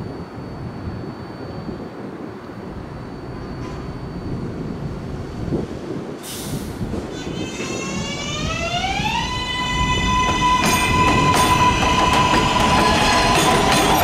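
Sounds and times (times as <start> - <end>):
wheels rumbling on track: 0.0 - 14.0
air hiss burst: 6.2 - 6.9.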